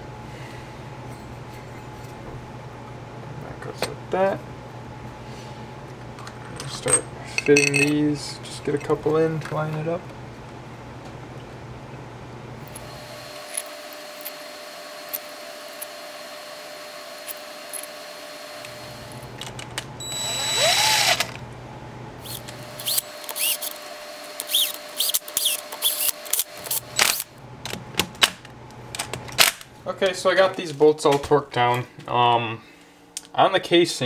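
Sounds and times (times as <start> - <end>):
power drill whining: 12.7 - 19.2, 20.0 - 21.4, 22.2 - 27.2.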